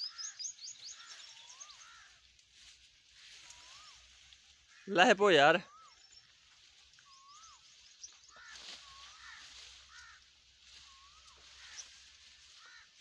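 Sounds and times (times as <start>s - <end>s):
high bird chirps: 0.0s - 2.2s, 5.6s - 9.2s
whistled bird calls: 0.0s - 2.2s, 3.4s - 4.2s, 5.6s - 6.3s, 7.0s - 9.3s, 10.7s - 12.0s.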